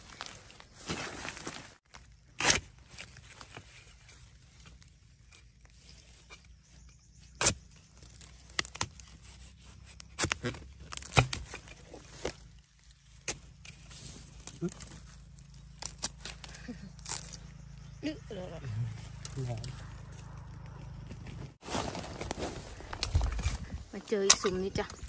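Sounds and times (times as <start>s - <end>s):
dry leaf litter rustling: 0.0s - 2.2s, 21.6s - 25.0s
dry twigs snapping: 7.4s - 17.8s, 19.1s - 21.4s.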